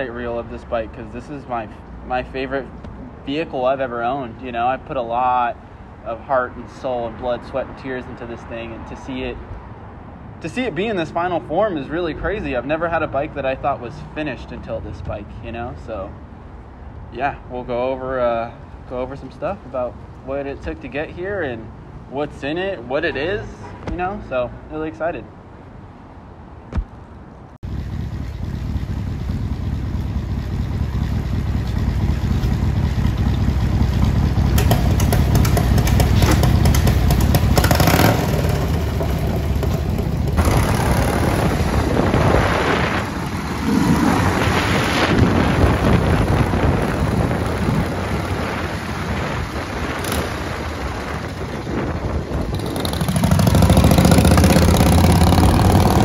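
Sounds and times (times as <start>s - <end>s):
motorcycle engine revving: 27.6s - 56.0s.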